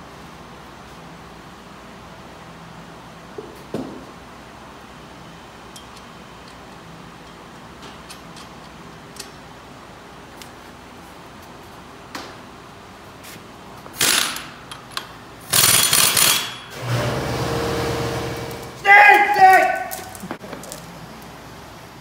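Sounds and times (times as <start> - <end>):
harsh metal tool bursts: 15.5 - 18.8.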